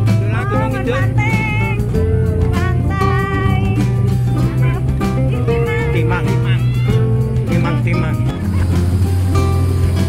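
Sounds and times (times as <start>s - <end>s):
steady low bass: 0.0s - 10.0s
song with wavering vocal: 0.2s - 7.8s.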